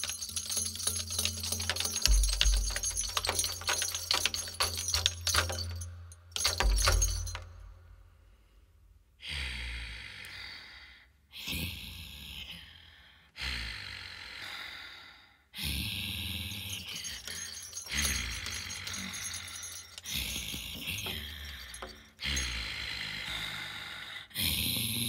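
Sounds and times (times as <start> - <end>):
metallic jangling and rattling: 0.0 - 7.9, 16.5 - 22.9.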